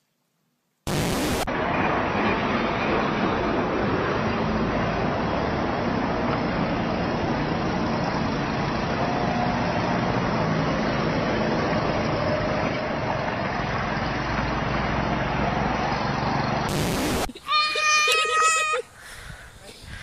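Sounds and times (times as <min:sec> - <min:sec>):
motor vehicle engine and rolling: 0:01.4 - 0:16.7.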